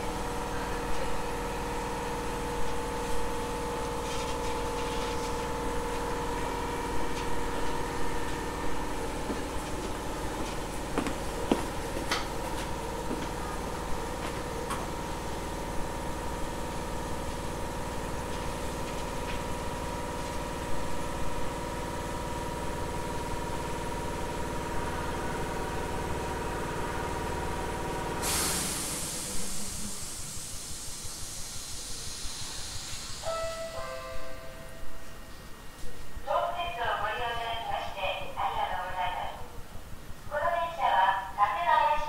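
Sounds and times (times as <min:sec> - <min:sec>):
train compressor humming and whining: 0:00.0 - 0:42.0
hiss of released air: 0:28.2 - 0:33.8.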